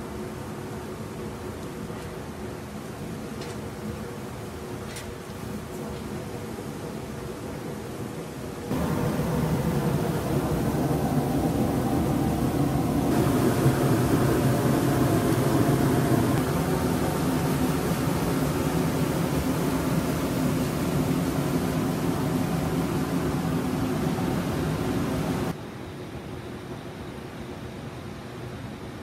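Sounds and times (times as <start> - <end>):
geyser jet hissing: 8.7 - 25.5.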